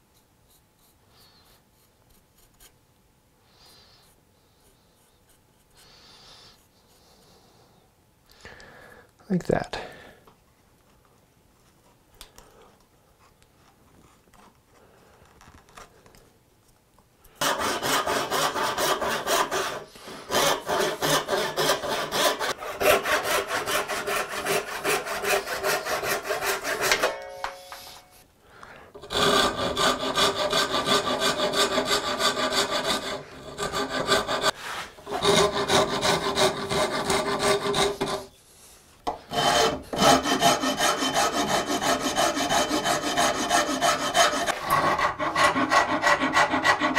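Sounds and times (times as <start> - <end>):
file scraping wood: 17.4 - 27.2, 29.0 - 38.4, 39.1 - 46.9.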